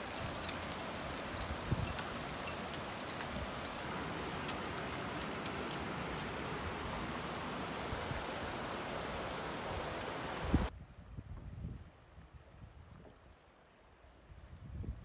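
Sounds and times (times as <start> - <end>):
faint clicks: 0.0 - 6.4
stream running over rocks: 0.0 - 10.7.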